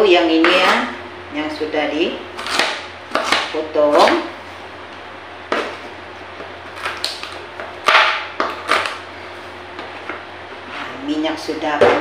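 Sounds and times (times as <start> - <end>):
knife chopping on plastic board: 2.4 - 4.2, 6.4 - 9.0.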